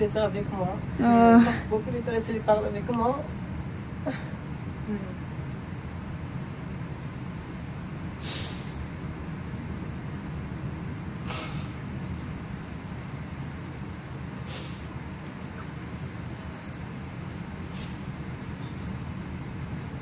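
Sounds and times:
man sniffling while crying: 8.2s - 8.8s, 11.2s - 11.8s, 14.5s - 14.9s, 17.7s - 18.1s.

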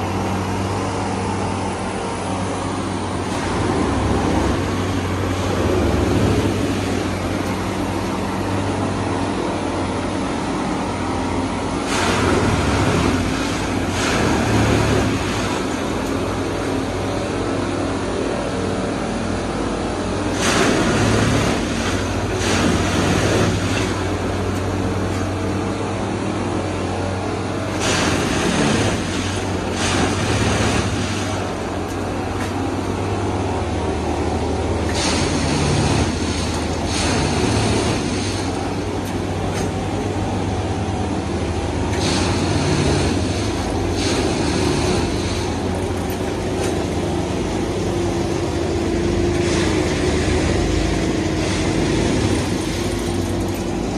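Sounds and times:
hissing and rattling bursts: 20.2s - 25.2s, 27.6s - 32.1s, 34.8s - 39.9s, 41.7s - 53.9s.

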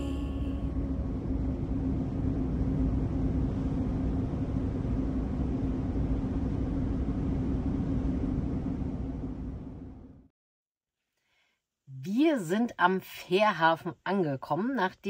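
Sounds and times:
van engine and road noise: 0.0s - 10.2s
steady low hum: 0.0s - 10.3s.

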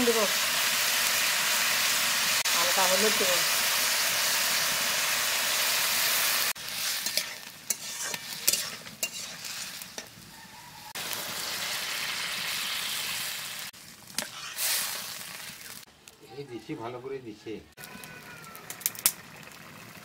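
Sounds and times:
water poured with hiss: 0.0s - 10.0s, 11.0s - 15.9s
vegetables sizzling in hot oil: 0.0s - 15.9s, 17.8s - 20.0s.

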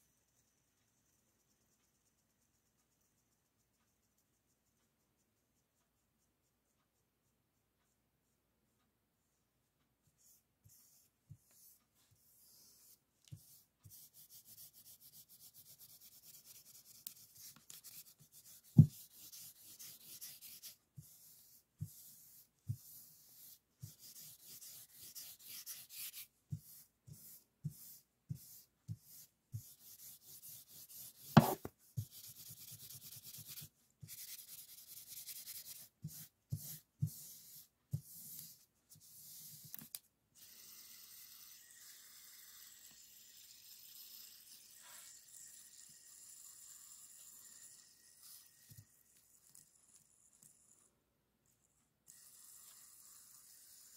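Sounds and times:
fidget spinner rubbing on paper: 10.0s - 49.9s, 52.1s - 53.9s.

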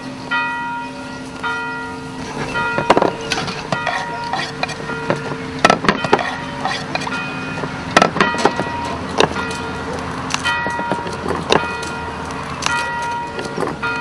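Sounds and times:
knife on wooden chopping board: 3.3s - 8.6s.

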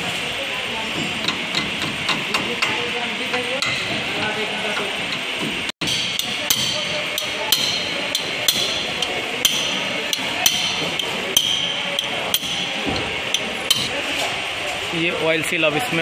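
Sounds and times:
sharp metallic taps: 4.8s - 14.0s.

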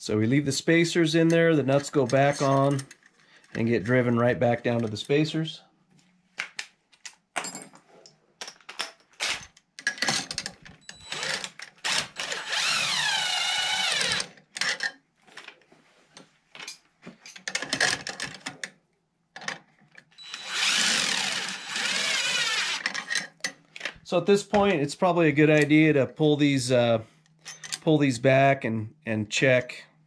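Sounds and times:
tools and parts clinking: 1.2s - 4.0s, 7.0s - 12.7s, 13.3s - 18.8s, 19.4s - 24.7s, 27.3s - 27.9s
cordless drill spinning: 10.9s - 14.3s, 20.2s - 23.2s.

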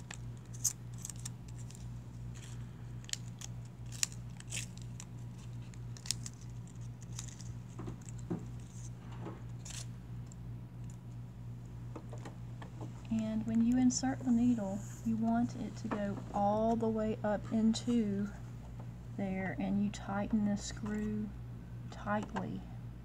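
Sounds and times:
light plastic rustles: 0.0s - 9.9s
steady low hum: 0.0s - 23.0s.

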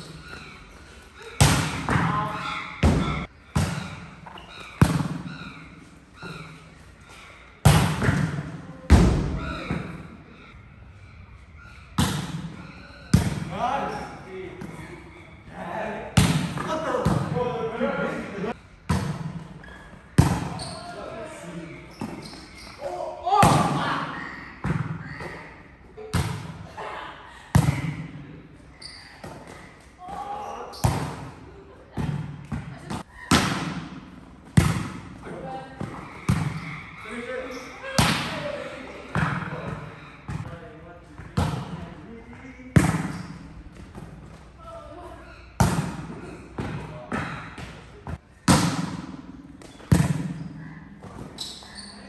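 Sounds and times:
volleyball smacks with echo: 1.4s - 5.3s, 7.6s - 10.0s, 12.0s - 13.6s, 16.2s - 17.4s, 18.9s - 19.6s, 20.2s - 20.6s, 26.1s - 26.6s, 29.2s - 31.4s, 32.0s - 35.2s, 35.8s - 36.8s, 38.0s - 38.5s, 39.1s - 40.5s, 41.3s - 41.8s, 42.7s - 44.2s, 45.6s - 51.3s.

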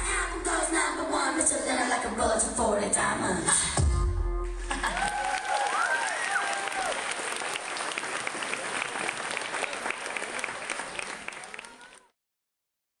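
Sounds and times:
audience applauding: 4.7s - 12.2s.

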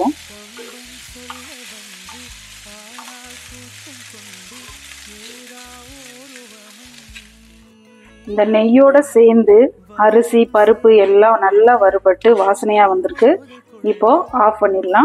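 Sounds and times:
grains sizzling in a pan: 0.0s - 8.3s.

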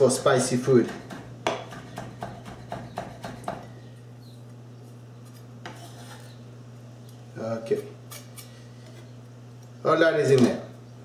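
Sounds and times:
knife chopping on wooden board: 0.7s - 3.7s.

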